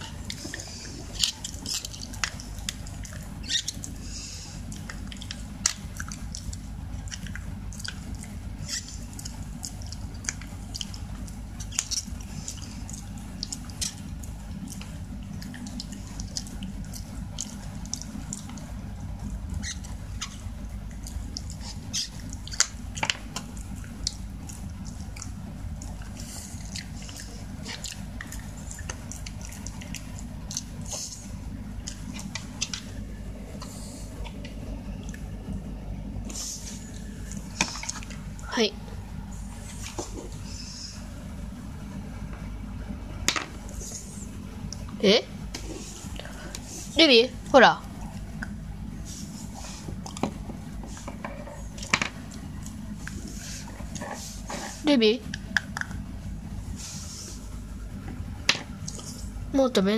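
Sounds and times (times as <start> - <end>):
dog chewing a chew: 0.0 - 35.4
steady low hum: 0.0 - 59.9.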